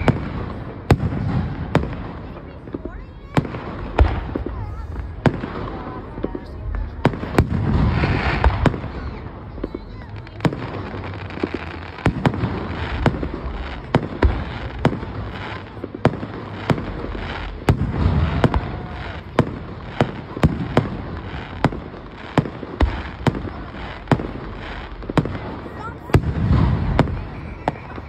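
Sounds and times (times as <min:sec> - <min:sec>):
fireworks bangs: 0:00.0 - 0:28.0.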